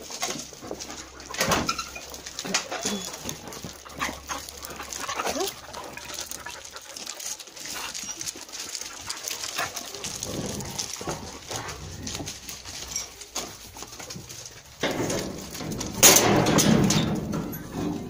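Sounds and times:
dogs whining and whimpering: 1.1s - 13.2s.

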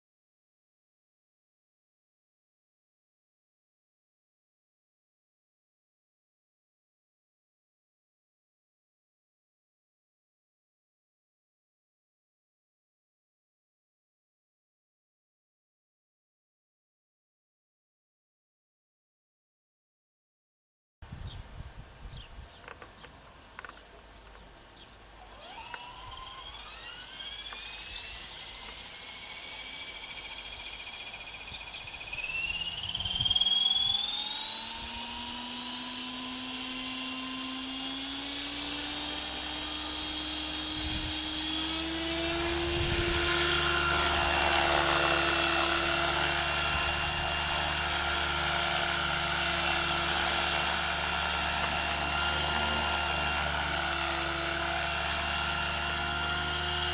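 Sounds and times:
rc helicopter motor whine: 22.6s - 56.9s.

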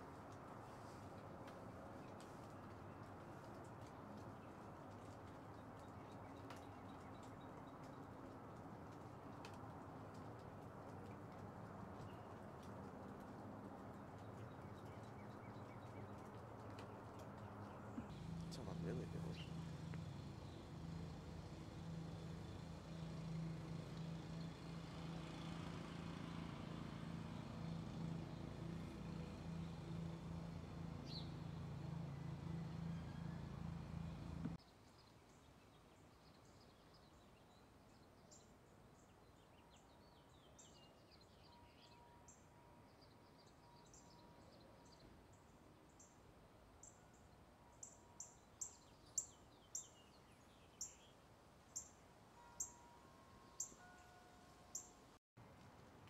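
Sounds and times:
birds chirping: 14.0s - 23.1s.

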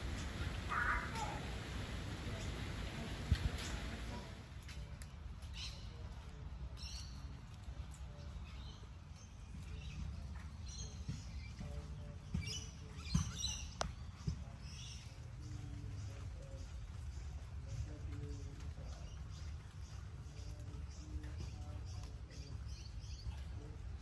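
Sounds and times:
low background rumble: 0.0s - 6.8s
birds chirping: 0.0s - 24.0s.

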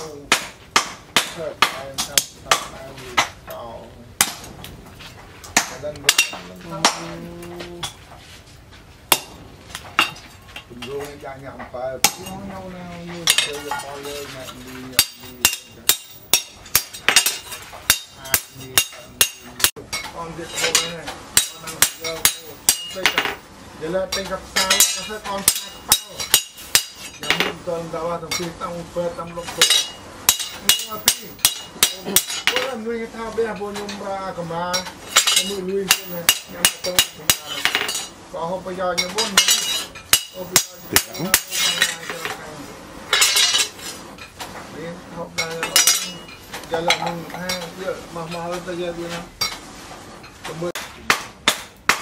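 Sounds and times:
hammer striking steel blade: 35.2s - 38.1s.

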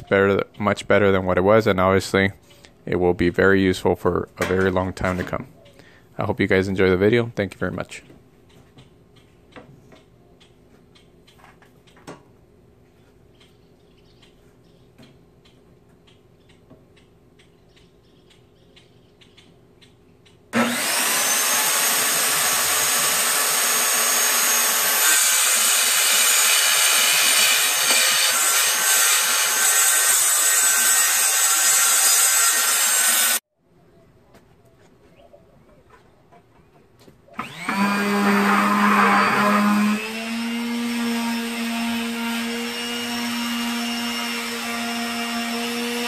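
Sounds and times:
circular saw cutting wood: 20.6s - 33.4s, 37.4s - 46.0s.

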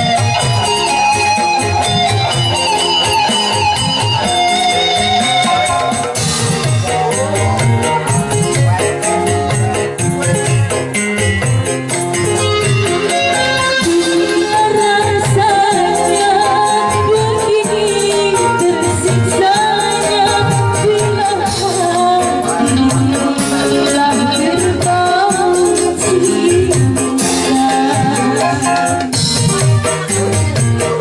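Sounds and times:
electric guitar: 0.0s - 31.0s
hand drums: 0.0s - 31.0s
keyboard: 0.0s - 31.0s
woman singing: 13.8s - 29.4s.

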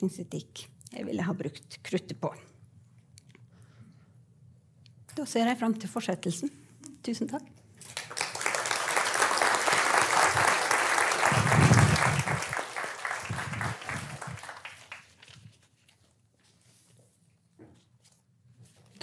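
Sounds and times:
audience applauding: 7.8s - 15.4s.

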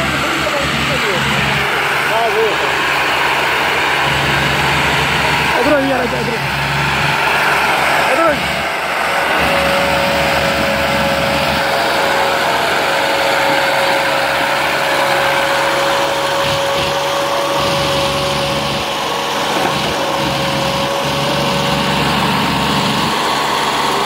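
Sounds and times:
steady whine: 0.0s - 24.0s
tractor diesel engine under load: 0.0s - 24.0s.

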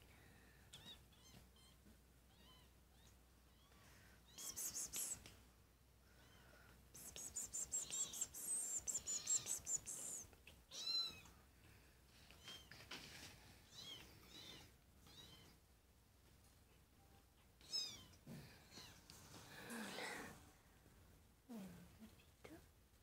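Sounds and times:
kitten mewing: 4.3s - 5.2s, 7.0s - 10.3s.

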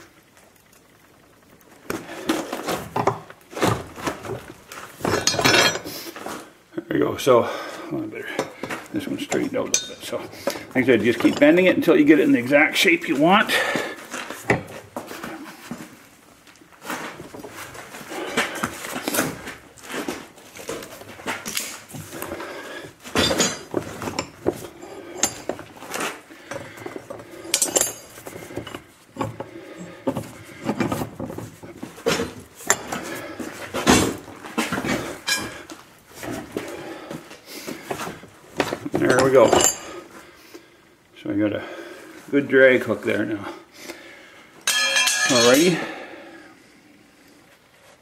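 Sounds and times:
steel bar clanking against vise: 9.3s - 10.6s, 25.1s - 25.6s, 27.5s - 31.0s, 32.1s - 33.1s, 44.7s - 45.7s.

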